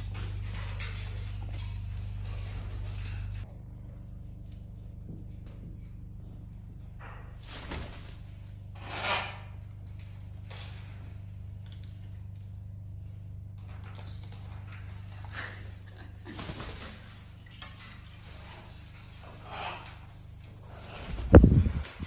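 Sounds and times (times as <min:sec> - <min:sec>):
light clinks and knocks: 0:08.8 - 0:15.9.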